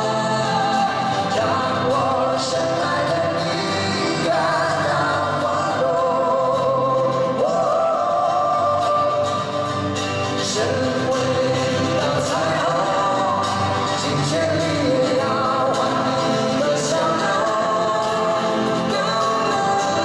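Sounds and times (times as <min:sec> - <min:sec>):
men singing in harmony: 0:00.0 - 0:20.0
pop-rock band playing: 0:00.0 - 0:20.0.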